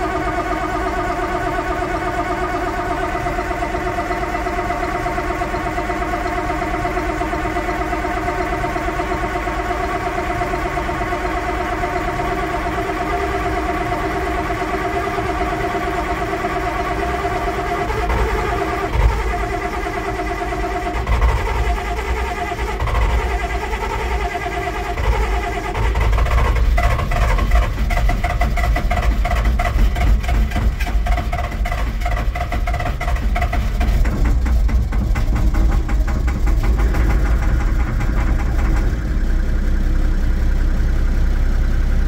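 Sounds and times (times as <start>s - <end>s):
tractor diesel engine idling: 0.0s - 42.0s
deep rumble: 11.4s - 42.0s.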